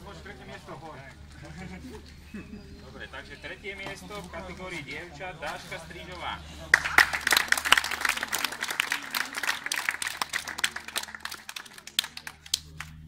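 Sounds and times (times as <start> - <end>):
crowd applauding: 6.6 - 13.0.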